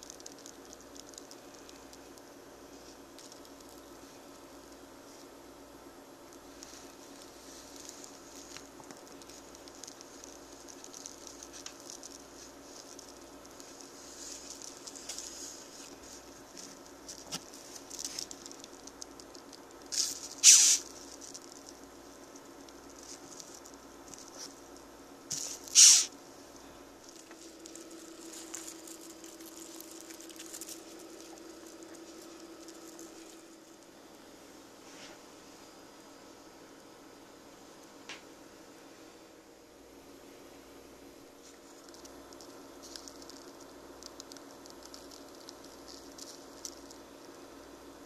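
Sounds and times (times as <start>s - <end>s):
beetle feet scratching on paper: 6.5s - 24.6s, 25.3s - 26.1s, 27.1s - 33.6s
beetle hissing: 19.8s - 21.3s, 25.3s - 26.2s.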